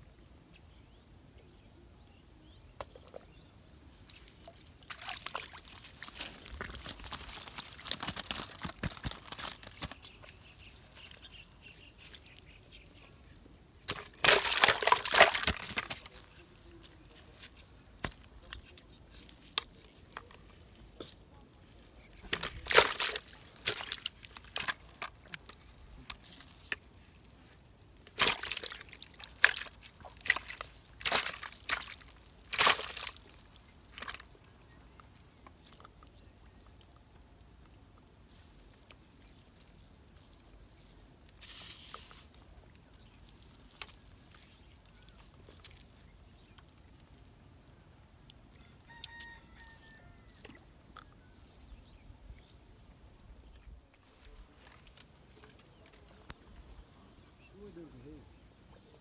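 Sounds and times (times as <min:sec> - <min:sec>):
water splashing and sloshing: 0:03.9 - 0:47.2.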